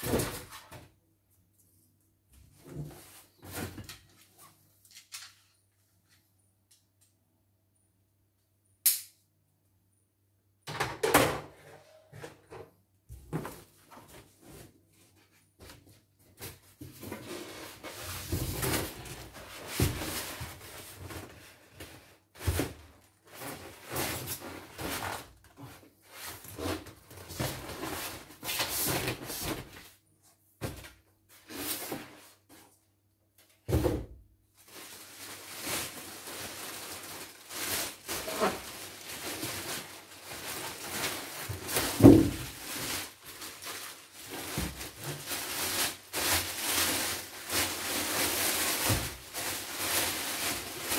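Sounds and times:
plastic wrap rustling: 13.4s - 29.8s, 34.5s - 50.9s
styrofoam knocks and thuds: 18.2s - 20.6s, 40.5s - 43.0s, 44.3s - 45.5s, 48.6s - 50.9s.

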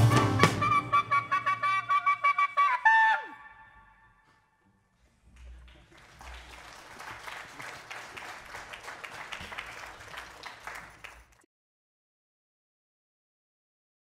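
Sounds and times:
audience applauding: 5.3s - 11.5s.

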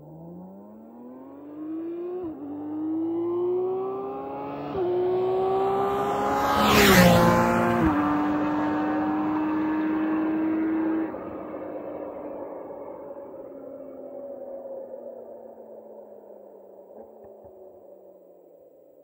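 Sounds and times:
motorcycle engine revving: 0.6s - 12.1s
rush of wind and tyre noise: 1.4s - 18.5s.

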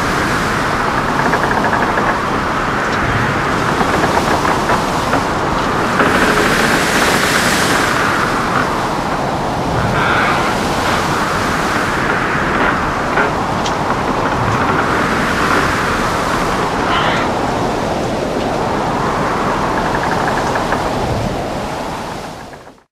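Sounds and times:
wind rushing: 0.0s - 22.4s
waves breaking: 0.0s - 22.8s
low rumble: 1.8s - 17.8s.

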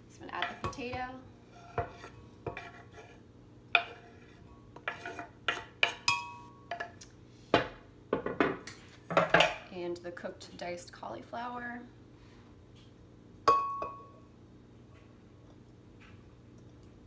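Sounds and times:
knife scraping and tapping board: 1.6s - 3.2s, 3.8s - 6.0s.

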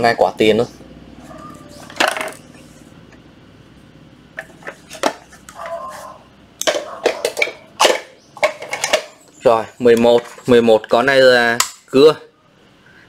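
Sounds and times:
plastic power tools clattering: 6.6s - 9.2s.

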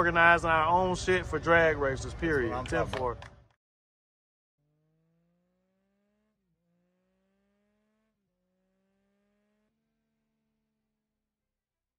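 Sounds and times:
faint engine accelerating through gears: 4.6s - 10.8s.

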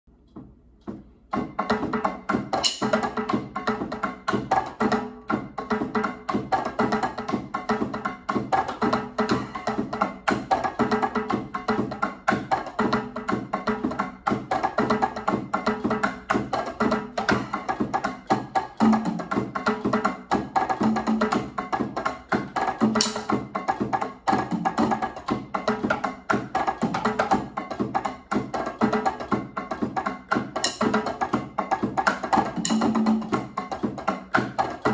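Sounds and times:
electronic drum kit percussion: 0.1s - 34.9s.

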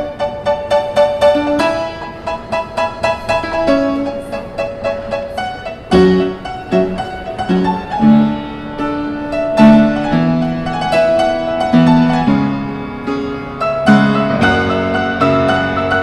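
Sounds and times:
low held chords: 0.8s - 16.0s.

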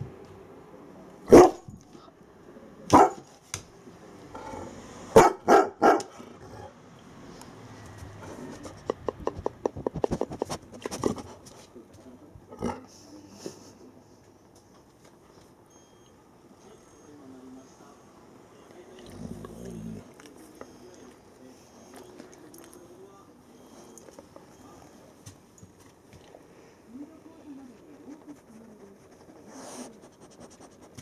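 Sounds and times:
dog barking: 1.3s - 1.7s, 2.9s - 3.3s, 5.1s - 6.2s.

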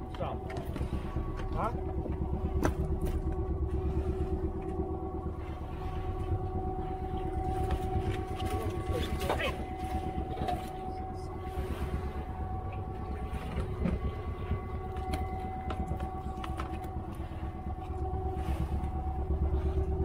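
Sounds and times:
boat engine rumbling: 0.0s - 20.0s.

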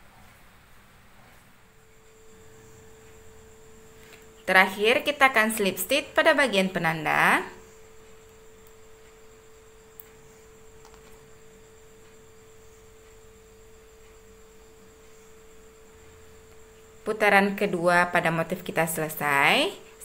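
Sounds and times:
low background noise: 0.0s - 20.0s
pure tone hum: 0.0s - 20.0s.

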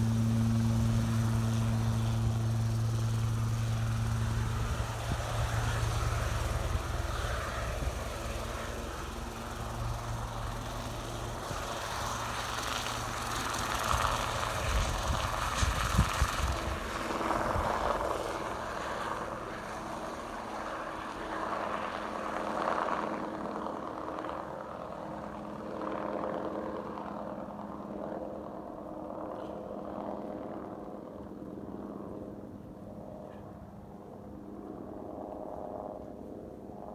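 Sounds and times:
helicopter taking off: 0.0s - 36.9s.

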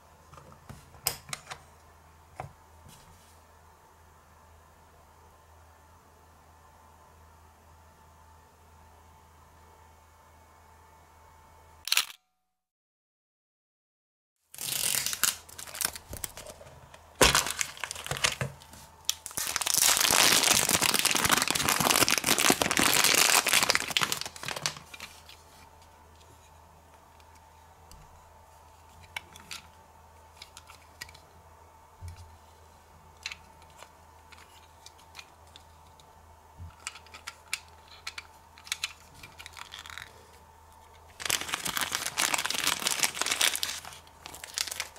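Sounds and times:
plastic packaging crinkling and tearing: 14.5s - 16.6s, 17.2s - 25.4s, 38.6s - 40.1s, 41.1s - 44.9s.

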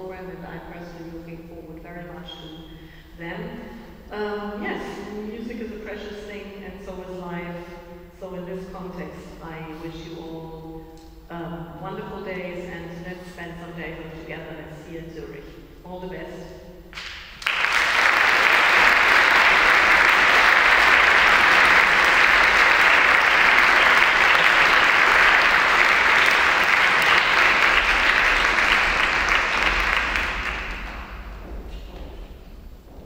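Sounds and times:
audience applauding: 17.0s - 31.4s.

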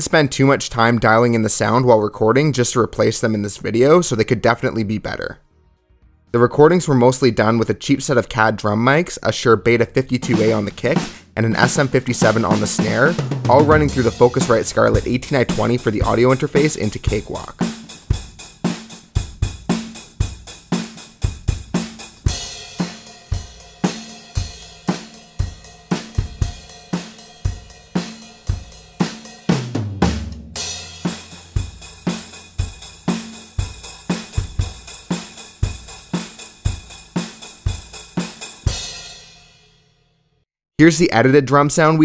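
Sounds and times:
tom fill: 9.7s - 39.4s
drum kit playing rock beat: 10.2s - 39.6s.

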